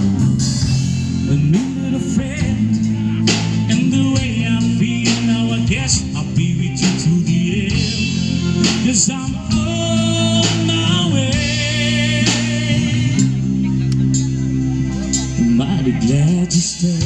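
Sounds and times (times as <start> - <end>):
man singing: 0.0 - 13.6, 15.1 - 17.0
live rock band playing: 0.0 - 17.0.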